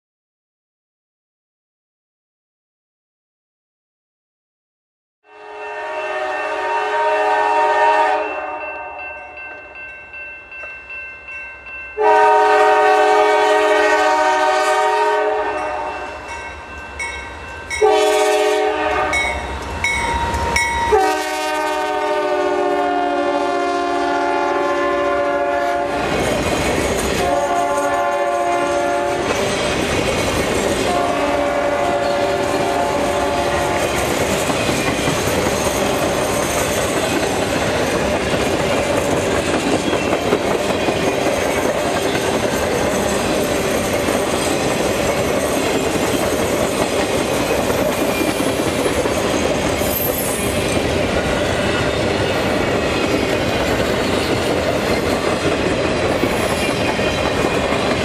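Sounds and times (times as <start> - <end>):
locomotive air horn: 5.2 - 9.0, 12.0 - 16.1, 17.8 - 19.4, 20.3 - 26.1, 27.2 - 29.3, 30.8 - 34.0
train wheels clickety-clack: 25.8 - 58.0.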